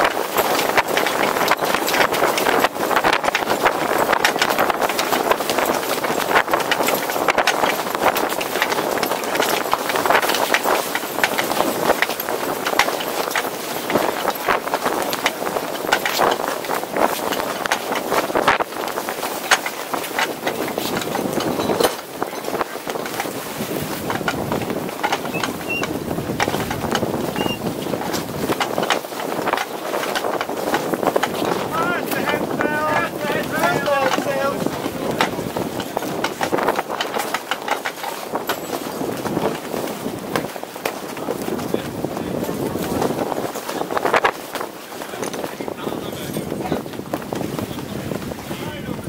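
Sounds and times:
rapid irregular clattering: 0.0s - 46.8s
steady rushing noise: 0.0s - 49.0s
wind rushing: 23.2s - 36.9s
sharp clicks and knocks: 24.0s - 38.7s
short high squeaks: 25.3s - 25.9s, 27.3s - 27.7s.

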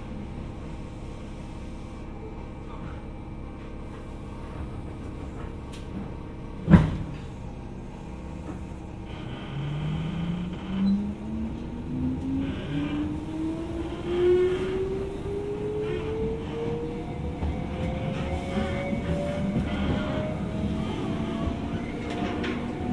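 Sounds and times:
train doors shutting: 2.8s - 22.9s
electric train humming: 3.3s - 22.9s
traction motors whining: 8.4s - 22.9s.

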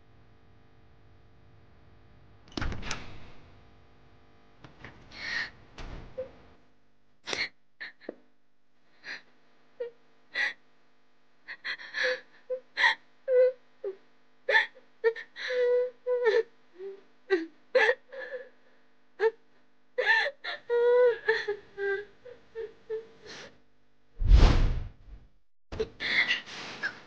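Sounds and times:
woman sobbing: 7.4s - 8.2s, 11.5s - 18.6s, 19.2s - 19.4s, 20.0s - 23.4s.

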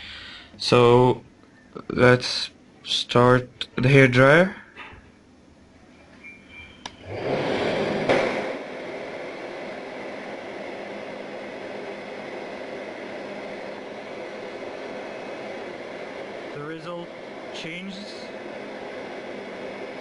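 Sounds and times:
hair dryer blowing air: 7.0s - 20.0s.

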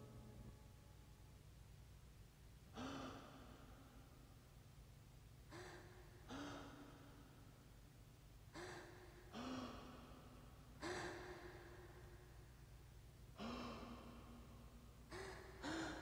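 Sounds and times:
heavy breathing: 15.1s - 16.0s.

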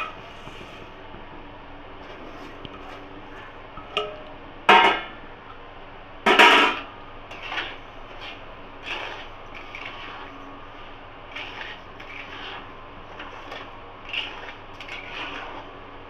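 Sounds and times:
metal spatula scraping a pan: 6.3s - 15.8s.

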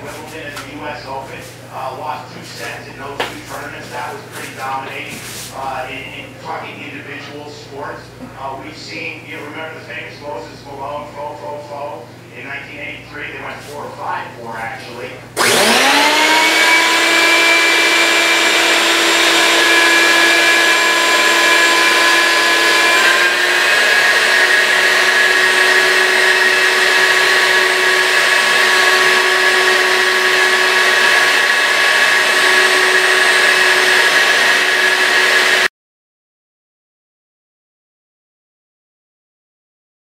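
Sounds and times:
vacuum motor whining: 15.3s - 35.7s.

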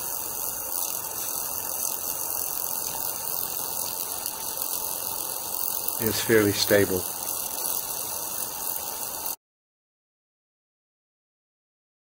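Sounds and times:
hissing plasma arc discharge: 0.0s - 9.4s.

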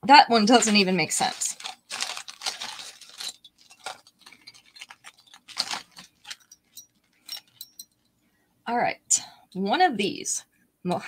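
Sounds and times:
earrings clicking and rattling: 0.4s - 8.2s.

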